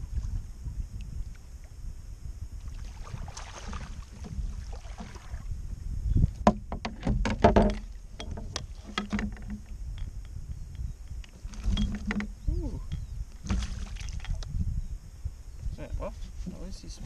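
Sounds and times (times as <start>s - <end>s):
wind rumble on microphone: 0.0s - 17.0s
water splashing and knocking: 2.9s - 5.4s, 6.3s - 14.5s.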